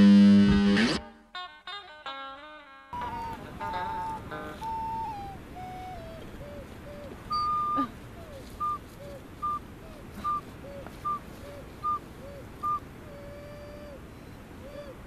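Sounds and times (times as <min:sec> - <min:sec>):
ocarina hooting notes: 0:03.0 - 0:15.0.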